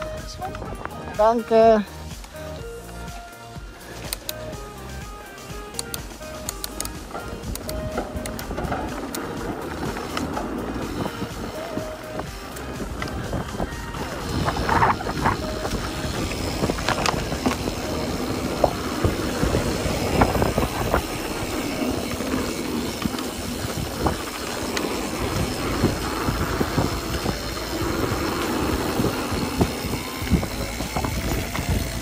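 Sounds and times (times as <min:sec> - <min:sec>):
bike clicks and rattles: 0:00.0 - 0:32.0
tyres rumbling on dirt: 0:06.1 - 0:32.0
wind on microphone: 0:07.0 - 0:32.0.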